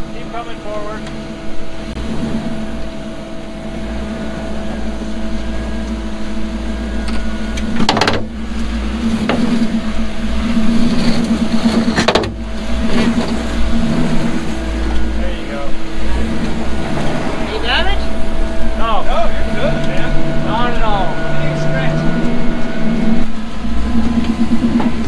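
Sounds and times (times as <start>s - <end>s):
off-road vehicle engine running: 0.0s - 25.0s.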